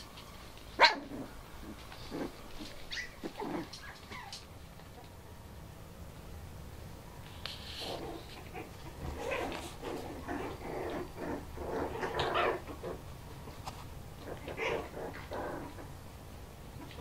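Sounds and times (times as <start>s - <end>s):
puppies yelping and whimpering: 1.6s - 4.4s.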